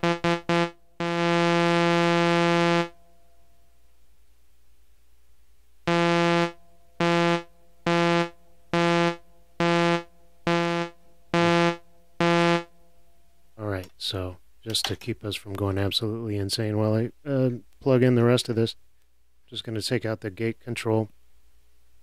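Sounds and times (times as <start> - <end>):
synthesizer note pulsing: 0.0 - 3.0, 5.9 - 12.7.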